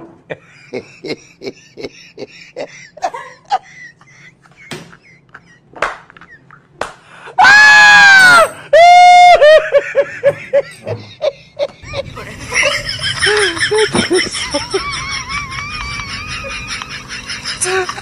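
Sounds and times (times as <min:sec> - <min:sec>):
loud high falling cry: 0:07.4 - 0:09.6
bursts of laughter: 0:09.4 - 0:18.0.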